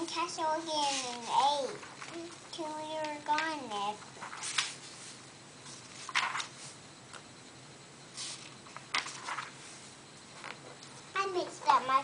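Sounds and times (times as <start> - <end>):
book pages rustling: 4.2 - 6.8, 8.2 - 10.7.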